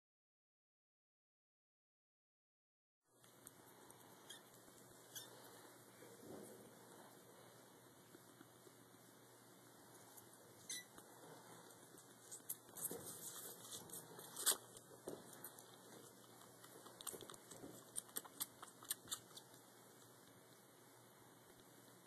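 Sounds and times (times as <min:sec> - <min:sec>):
kitten suckling from bottle: 0:03.3 - 0:05.9, 0:10.6 - 0:20.8.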